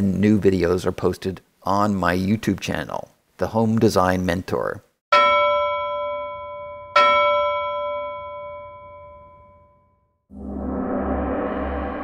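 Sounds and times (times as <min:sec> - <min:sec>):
bell-like chime: 0:05.1 - 0:12.0
deep gong: 0:10.3 - 0:12.0.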